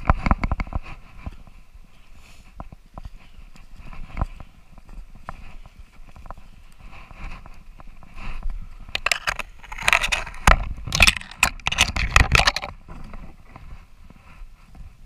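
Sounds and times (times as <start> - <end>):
footsteps crunching through snow and leaves: 0.0 - 10.9
twigs and brush scraping: 0.0 - 15.0.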